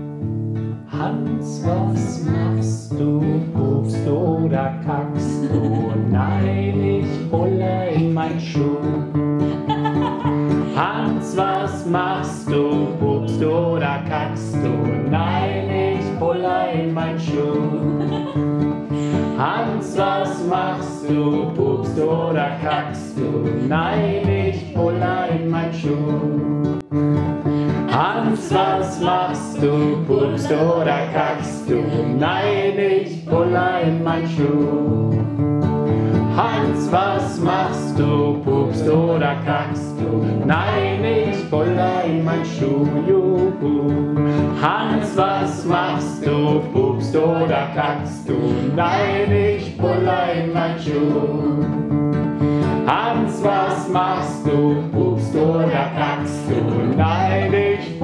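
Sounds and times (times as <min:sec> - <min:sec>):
acoustic guitar playing: 0:00.0 - 0:58.0
group of voices singing: 0:00.9 - 0:26.7, 0:27.5 - 0:51.9, 0:52.5 - 0:58.0.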